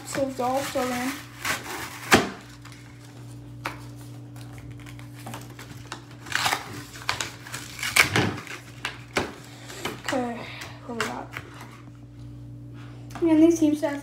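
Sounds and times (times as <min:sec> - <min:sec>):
faint steady hum: 0:00.0 - 0:14.0
packaging tearing and crinkling: 0:00.2 - 0:03.1, 0:04.3 - 0:09.5.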